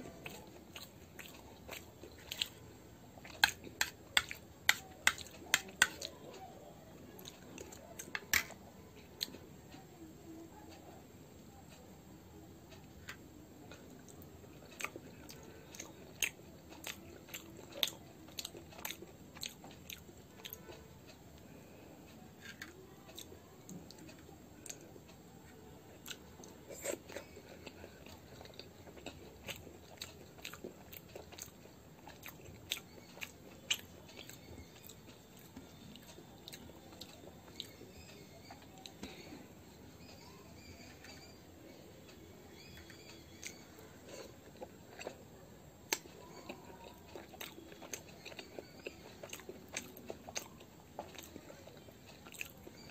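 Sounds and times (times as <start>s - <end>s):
chewing and biting food: 0.1s - 2.6s, 14.0s - 20.7s, 26.0s - 39.0s, 42.6s - 45.2s, 45.9s - 52.9s.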